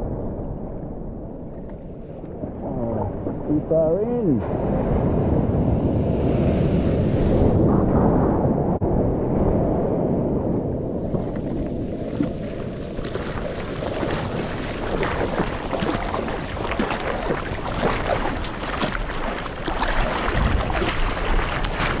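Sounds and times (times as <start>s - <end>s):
water splashing around surfboard: 11.0s - 22.0s.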